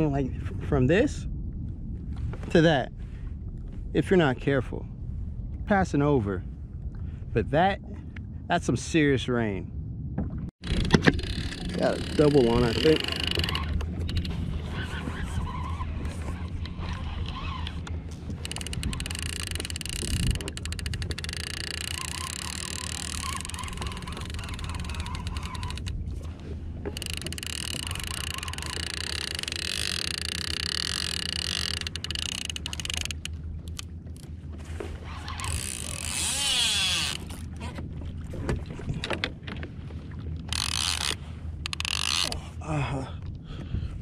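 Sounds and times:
wind on microphone: 0.0 - 44.0
water slapping kayak hull: 10.1 - 42.6
water rushing: 10.6 - 13.9
fishing reel whirring and clicking: 10.6 - 26.0, 26.9 - 33.9, 35.2 - 37.5, 40.5 - 42.4.

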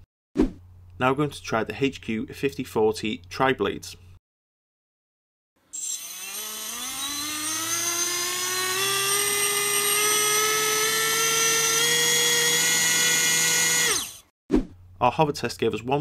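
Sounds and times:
electric motor propeller whine: 5.8 - 14.2.

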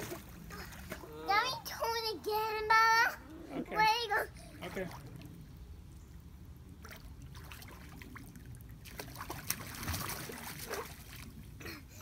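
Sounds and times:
water splashing and trickling: 0.0 - 12.0.

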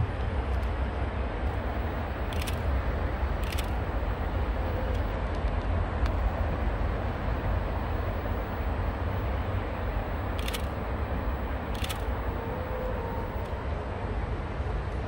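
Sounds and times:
constant hiss: 0.0 - 13.7.

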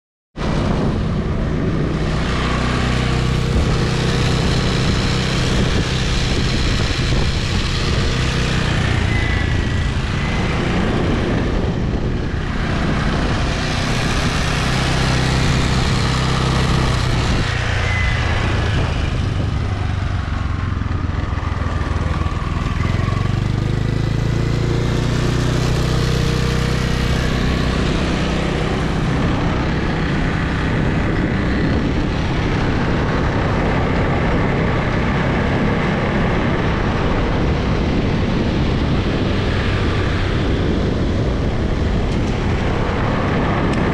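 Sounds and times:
scooter engine running: 0.4 - 43.9
wind and road noise: 0.4 - 43.9.

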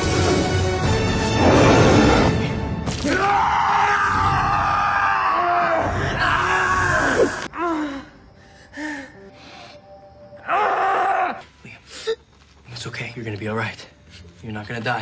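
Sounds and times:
boy groaning and gasping: 5.9 - 9.2.

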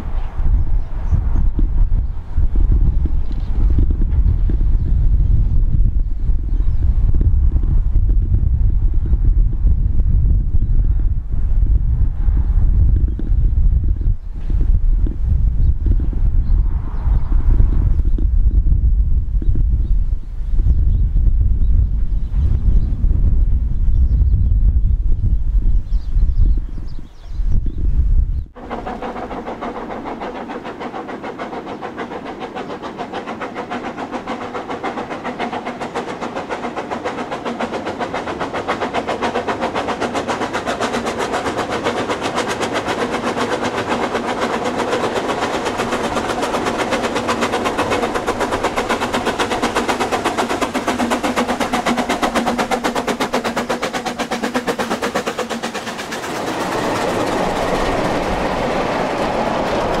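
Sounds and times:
steam train running: 0.0 - 10.3, 28.5 - 60.0.

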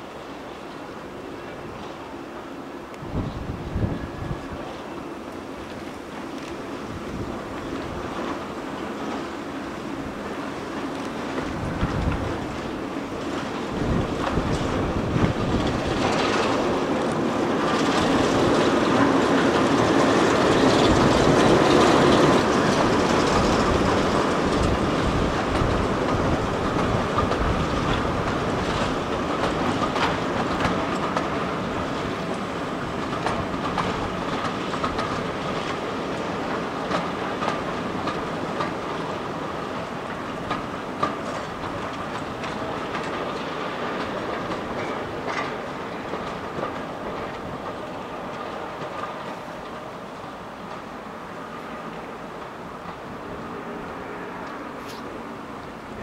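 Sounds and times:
diesel locomotive engines: 0.0 - 56.0
wheels clicking over rail joints: 0.5 - 56.0.

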